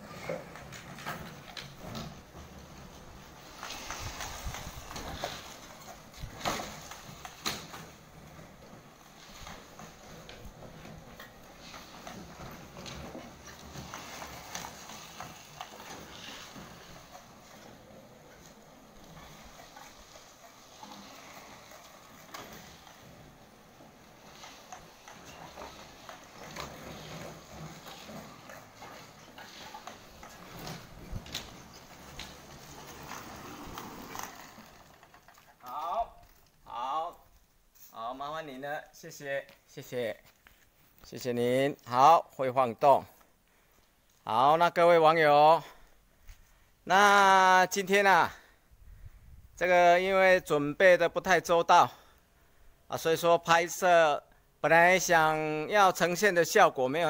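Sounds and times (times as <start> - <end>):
scooter low rumble: 0.0 - 36.4.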